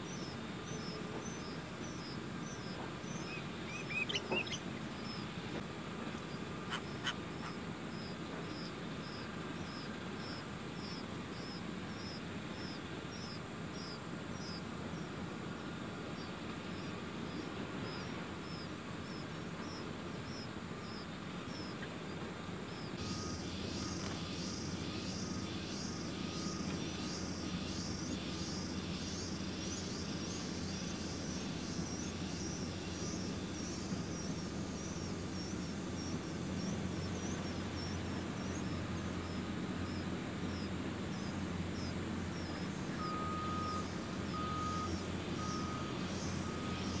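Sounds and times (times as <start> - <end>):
pulsed high insect call: 0.0 - 47.0
nestlings chirping: 0.1 - 5.4, 6.2 - 14.6, 22.7 - 47.0
faint beeps: 23.0 - 29.4, 42.9 - 47.0.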